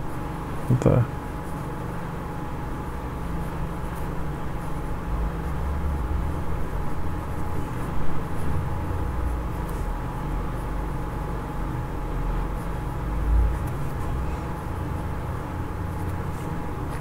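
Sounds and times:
faint constant whine: 0.0s - 17.0s
fountain pen scratching on paper: 3.4s - 5.6s, 6.6s - 11.3s, 12.4s - 17.0s.

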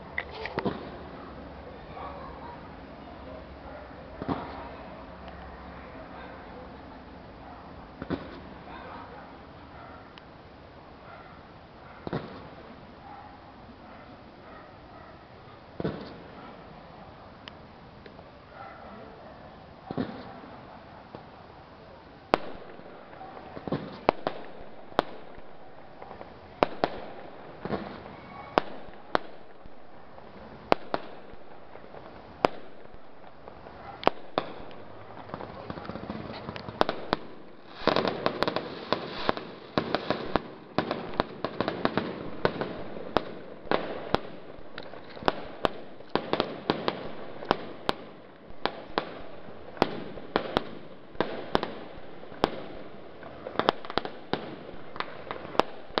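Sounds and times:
fireworks bursting with bangs: 0.0s - 1.4s, 4.2s - 5.3s, 8.0s - 8.8s, 12.0s - 12.8s, 15.8s - 16.6s, 19.8s - 21.4s, 22.2s - 56.0s
fireworks crackling: 0.0s - 1.9s, 2.6s - 5.7s, 6.8s - 8.8s, 9.4s - 13.0s, 15.4s - 18.6s, 19.6s - 56.0s.

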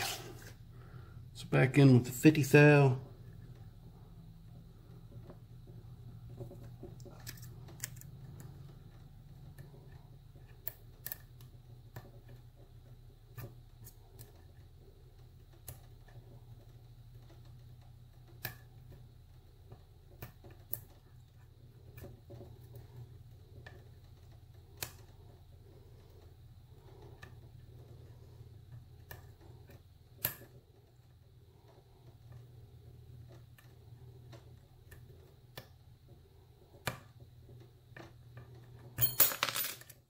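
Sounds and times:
faint steady hum: 0.0s - 40.0s
tension wrench clattering on desk: 39.0s - 40.0s.

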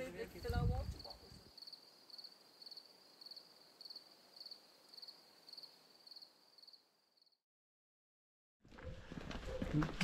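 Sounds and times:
insects chirping: 0.2s - 7.4s.

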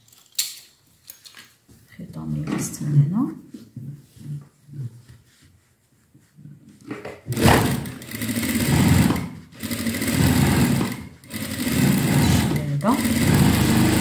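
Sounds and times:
sewing machine stitching: 7.3s - 14.0s.

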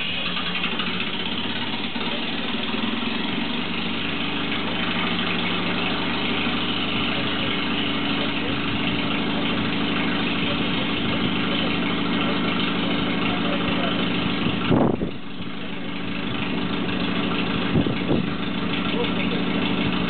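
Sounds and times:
engine idling: 0.0s - 20.0s.

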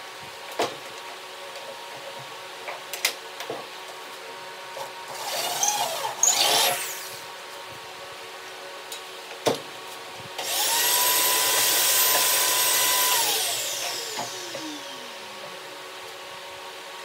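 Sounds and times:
vacuum cleaner whine: 4.8s - 8.8s, 10.3s - 17.0s.

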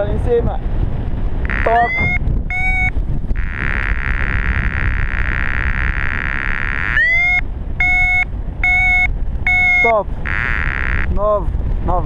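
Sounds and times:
wind rushing over microphone: 0.0s - 12.0s
variometer buzzing and beeping: 1.4s - 11.2s.

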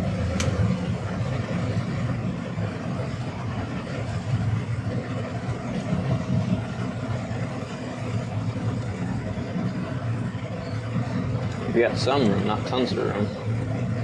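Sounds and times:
boat engine rumbling: 0.0s - 14.0s.

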